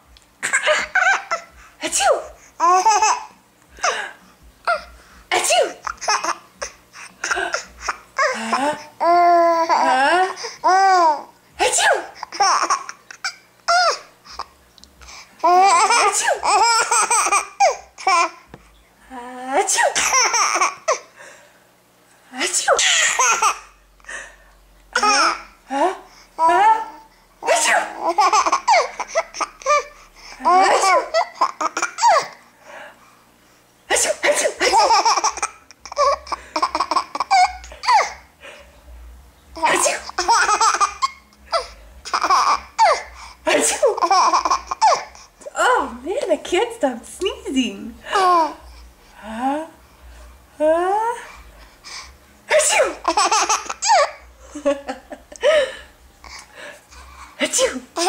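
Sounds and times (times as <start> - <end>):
baby laughing and squealing: 0.4 - 3.3, 4.7 - 14.1, 15.4 - 18.4, 19.8 - 21.0, 22.7 - 23.7, 25.0 - 25.5, 27.4 - 32.4, 33.9 - 38.3, 39.6 - 45.3, 52.6 - 54.2.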